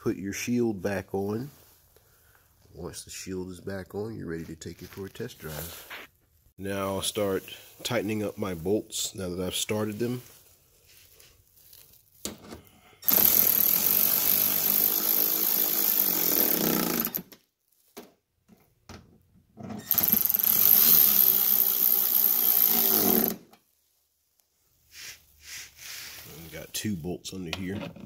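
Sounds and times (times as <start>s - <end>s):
cordless electric ratchet running: 13.0s - 17.2s, 19.9s - 23.4s.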